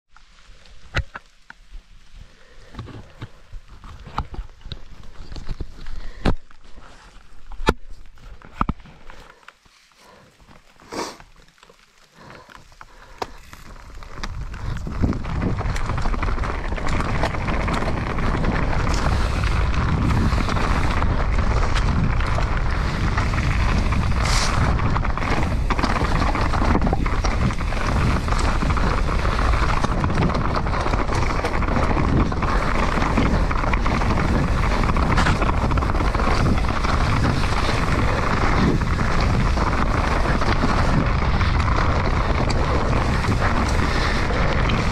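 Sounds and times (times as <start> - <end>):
bike tyres rolling on dirt: 0.1 - 44.9
bike rattling over rocks: 2.5 - 9.4, 10.4 - 44.9
wind on microphone: 13.5 - 44.9.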